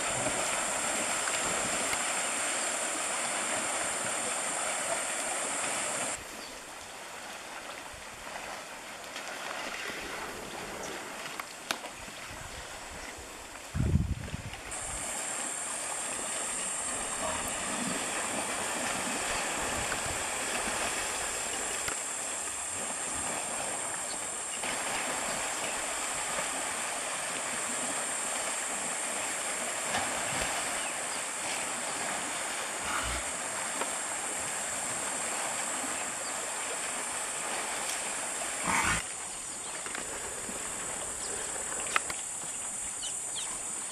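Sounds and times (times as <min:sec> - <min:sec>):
hiss: 0:00.0 - 0:06.2, 0:14.7 - 0:39.1
faint animal sounds: 0:38.6 - 0:41.9.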